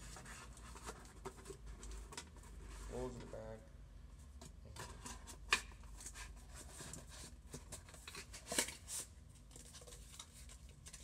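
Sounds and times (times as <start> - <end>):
cardboard rustling and scraping: 4.8 - 11.0.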